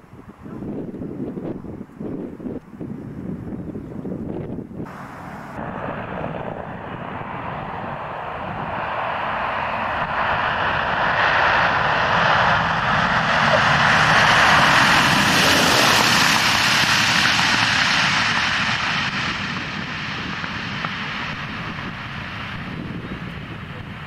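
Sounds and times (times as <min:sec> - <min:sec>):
propeller plane engines passing: 0:00.0 - 0:24.0.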